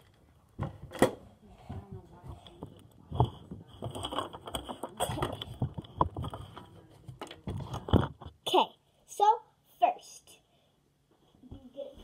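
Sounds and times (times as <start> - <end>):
small knocks and bumps: 0.0 - 8.6.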